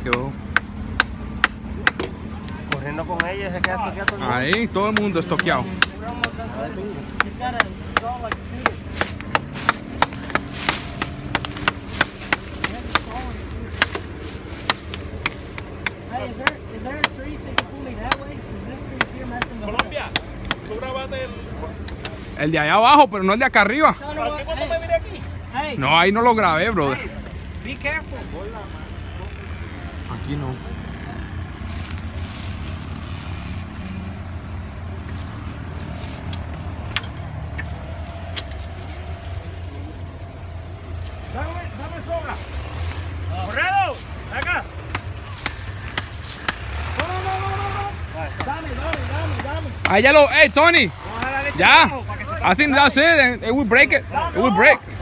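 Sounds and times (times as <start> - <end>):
hatchet chopping wood: 0.0 - 21.0, 36.3 - 38.8, 44.3 - 51.8.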